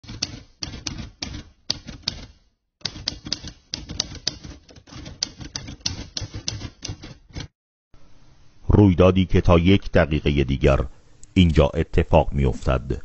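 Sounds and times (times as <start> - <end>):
typewriter key strikes: 0.0 - 7.1.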